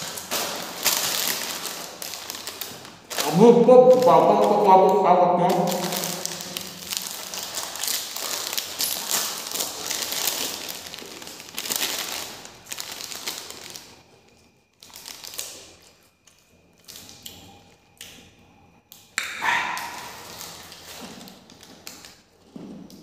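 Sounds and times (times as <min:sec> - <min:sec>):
plastic snack packet crinkling: 0:00.0 - 0:17.5, 0:19.5 - 0:23.0.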